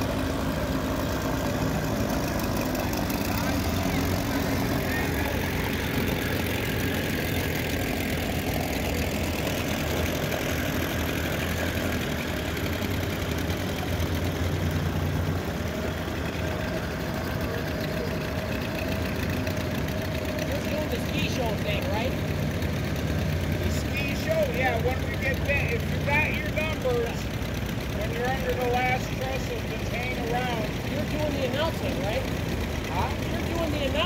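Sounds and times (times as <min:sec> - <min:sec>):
outboard motor running: 0:00.0 - 0:34.0.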